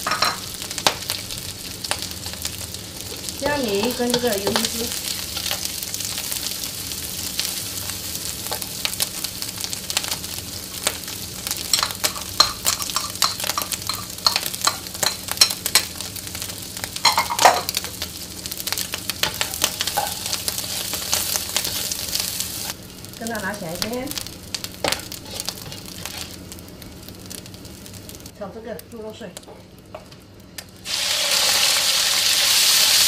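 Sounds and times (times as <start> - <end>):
food sizzling in a wok: 0.0 - 33.0
spatula scraping and knocking pan: 24.8 - 26.4.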